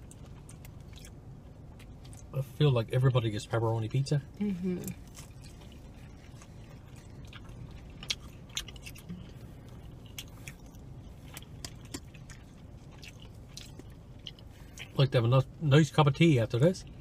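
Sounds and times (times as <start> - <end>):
chewing pizza: 0.0 - 17.0
low steady hum: 0.0 - 17.0
wet mouth clicks and smacks: 11.4 - 14.9.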